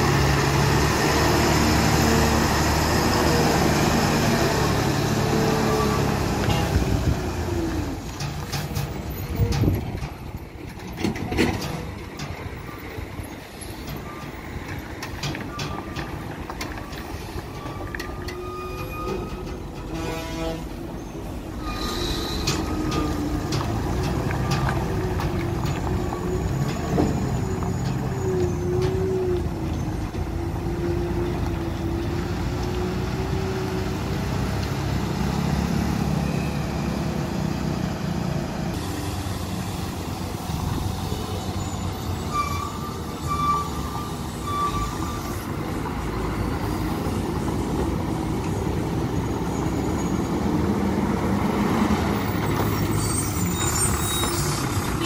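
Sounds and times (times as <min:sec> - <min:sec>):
truck engine rumbling with whine: 0:00.0 - 0:55.0
air brake hiss: 0:21.6 - 0:22.6, 0:38.8 - 0:40.2.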